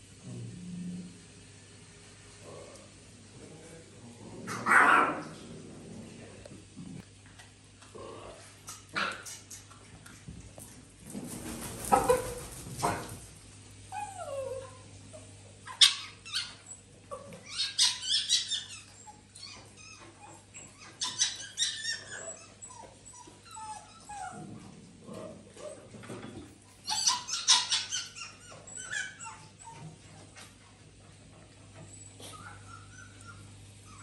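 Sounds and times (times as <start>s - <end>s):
small dogs whining and yipping: 13.9s - 24.4s, 26.8s - 30.1s, 31.8s - 34.0s.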